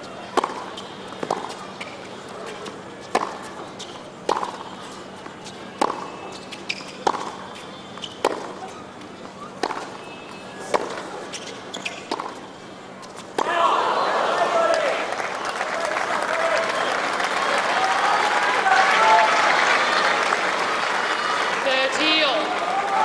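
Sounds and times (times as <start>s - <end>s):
racket hitting tennis ball: 0.3s - 8.8s, 9.5s - 13.7s.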